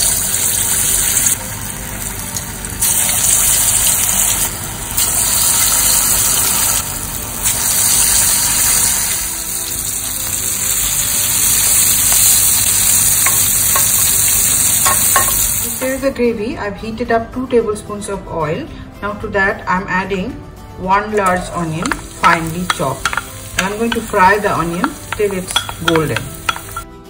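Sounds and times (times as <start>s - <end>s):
deep-frying sizzle: 0.0s - 15.8s, 21.8s - 26.8s.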